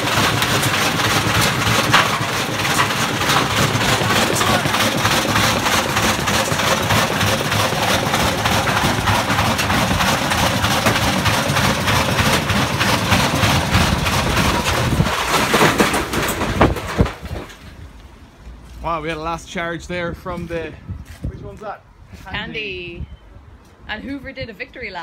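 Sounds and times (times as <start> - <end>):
washing machines banging while spinning: 0.0 - 17.5.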